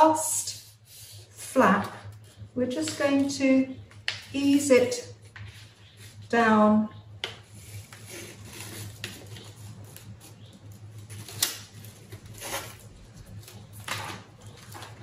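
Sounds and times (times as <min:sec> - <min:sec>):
foil paper rustling: 0:07.5 - 0:15.0.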